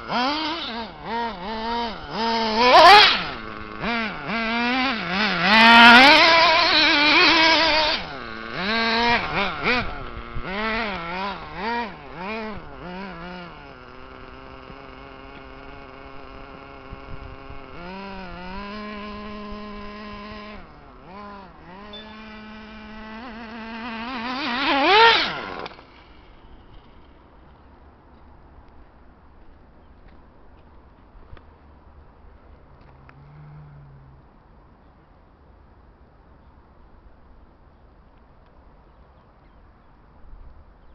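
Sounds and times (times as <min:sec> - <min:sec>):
toy car motor revving: 0:00.0 - 0:27.2.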